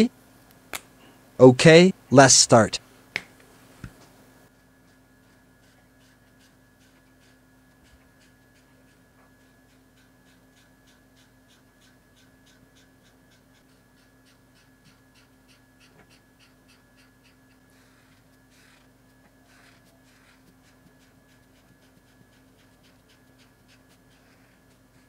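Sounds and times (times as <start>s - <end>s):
faint hum: 0.0s - 25.0s
brush pen strokes on paper: 4.8s - 14.7s, 19.5s - 25.0s.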